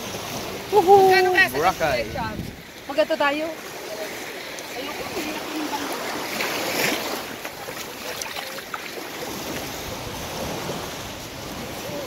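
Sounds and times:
wind blowing across microphone: 0:00.0 - 0:03.7
small surf washing onto beach: 0:00.0 - 0:12.0.

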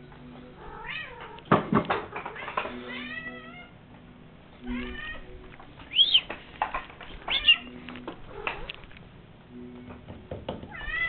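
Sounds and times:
cat meowing: 0:04.6 - 0:06.3, 0:07.2 - 0:08.8, 0:10.7 - 0:11.0.

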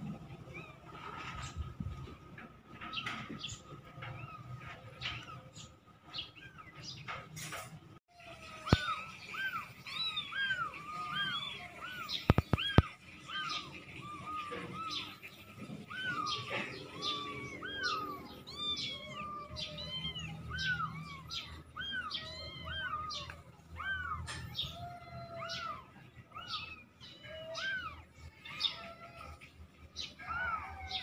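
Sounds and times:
kittens mewing: 0:08.1 - 0:31.0.

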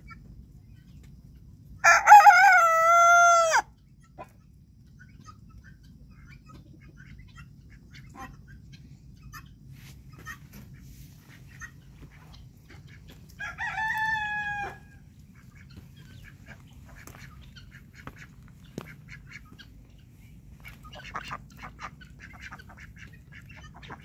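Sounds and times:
poultry clucking: 0:00.0 - 0:24.0
rooster crowing: 0:01.8 - 0:03.7, 0:13.4 - 0:15.1.

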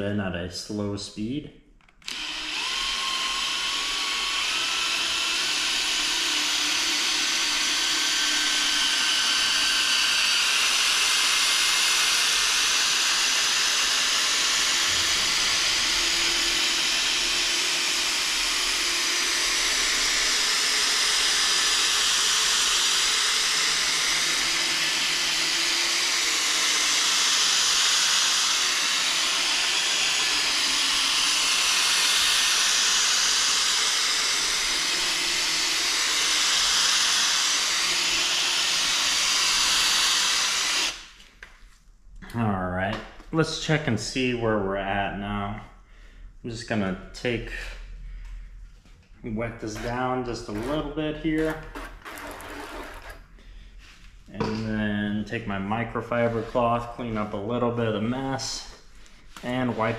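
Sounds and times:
drill motor whine: 0:02.0 - 0:41.1, 0:51.6 - 0:53.2.

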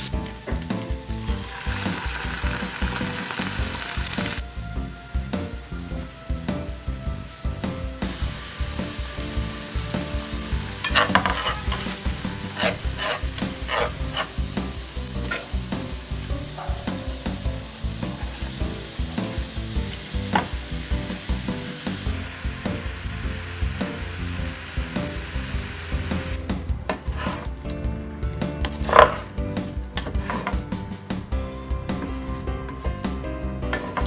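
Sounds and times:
onions sizzling in oil: 0:00.0 - 0:27.5
wooden spatula scraping pan: 0:10.8 - 0:14.6, 0:15.2 - 0:15.6, 0:26.9 - 0:27.6, 0:28.6 - 0:29.4, 0:30.0 - 0:30.7, 0:33.7 - 0:34.0.

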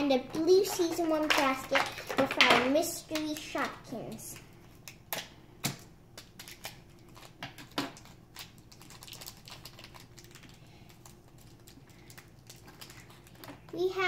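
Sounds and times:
plastic wrapper crinkling: 0:06.1 - 0:14.0.

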